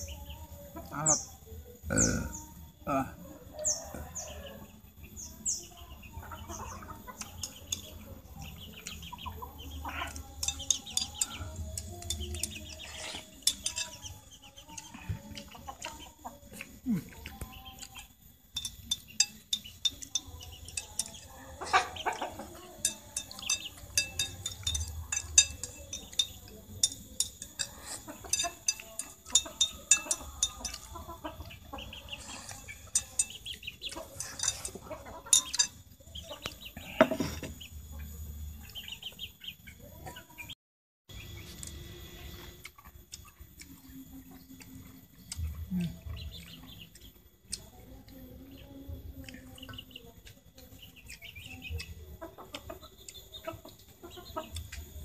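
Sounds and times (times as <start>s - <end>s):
eating sounds: 0.0s - 3.2s, 6.2s - 40.4s, 41.1s - 55.0s
chickens clucking: 0.0s - 55.0s
chopsticks clicking on a plate: 10.0s - 35.8s.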